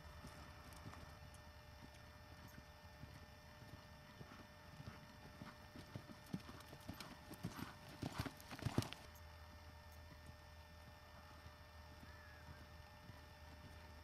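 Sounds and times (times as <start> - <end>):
horse hoofbeats on dirt: 0.2 - 9.1, 10.0 - 14.0.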